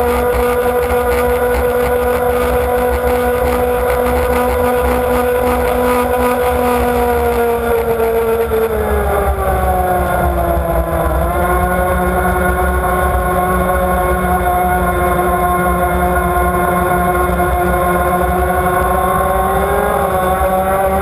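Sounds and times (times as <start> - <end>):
powerboat engine running hard: 0.0 - 10.1.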